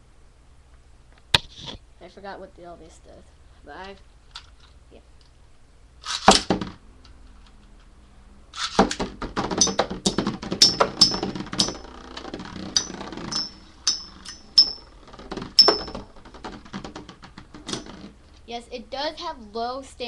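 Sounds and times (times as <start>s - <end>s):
spinning tops launch clatter: 6.0s - 6.6s, 8.6s - 14.9s
spinning tops colliding with metallic clinks: 9.6s - 12.0s, 12.7s - 16.0s.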